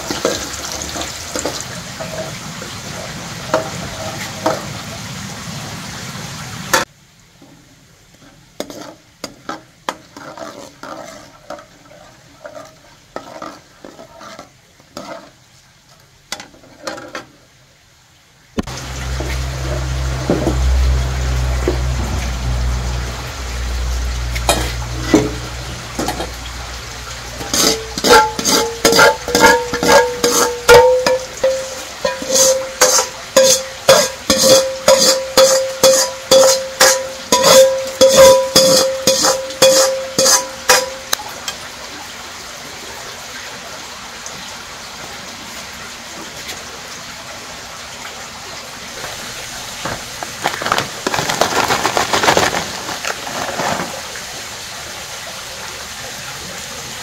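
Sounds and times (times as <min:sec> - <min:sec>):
low hum with frying hiss: 0:00.0 - 0:57.0
metal utensil knocking on pot: 0:27.4 - 0:41.2.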